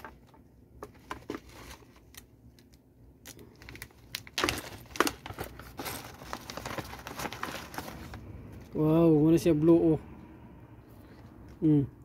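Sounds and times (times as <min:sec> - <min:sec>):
plastic bag crinkling: 0:03.2 - 0:08.7.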